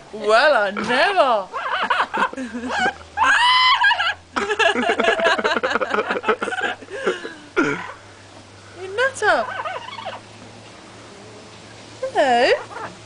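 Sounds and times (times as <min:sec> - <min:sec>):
parrot wavering call: 0:01.5 - 0:02.0, 0:02.7 - 0:04.3, 0:09.3 - 0:10.3, 0:12.4 - 0:13.0
rapid chuckling: 0:01.5 - 0:08.0.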